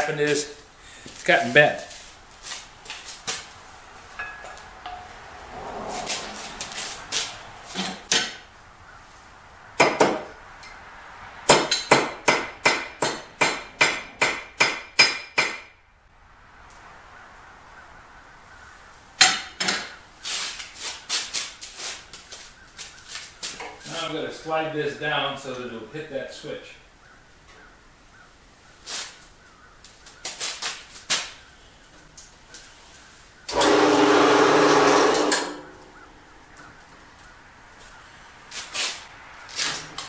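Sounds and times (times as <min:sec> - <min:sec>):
hammer striking steel bar: 0:11.5 - 0:15.7.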